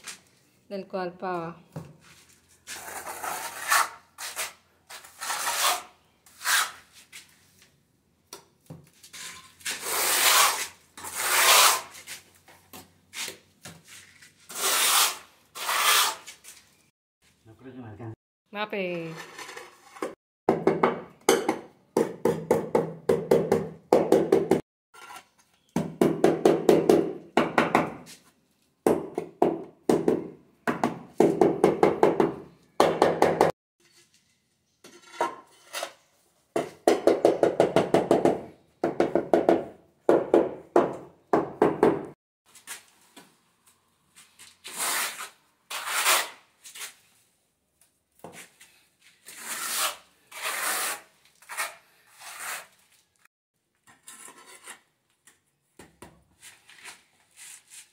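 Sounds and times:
trowel scraping adhesive on concrete: 2.2s - 7.4s, 9.0s - 12.3s, 13.1s - 16.6s, 34.8s - 36.2s, 44.2s - 47.1s, 48.3s - 53.2s, 53.8s - 55.4s.

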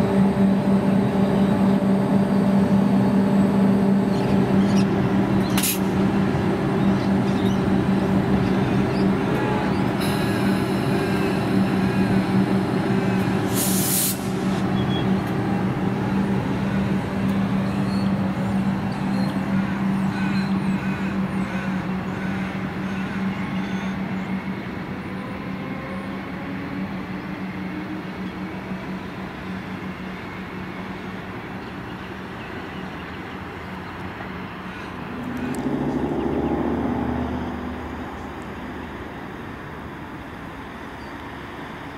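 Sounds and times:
train electrical hum: 0.0s - 41.9s
compressed-air brake hiss: 13.5s - 14.4s.

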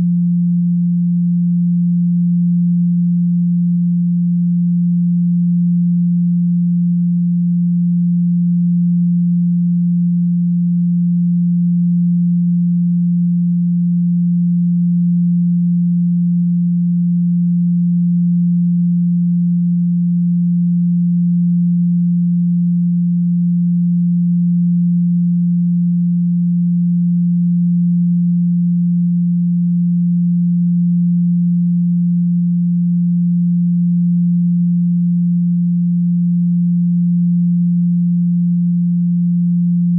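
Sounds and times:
low sine-wave tone: 0.0s - 39.9s.

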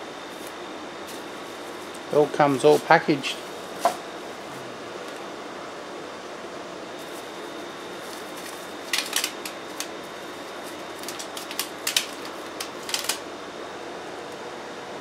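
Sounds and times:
steady background hiss: 0.0s - 15.0s
plastic bag handled: 0.3s - 4.0s, 7.0s - 12.9s.

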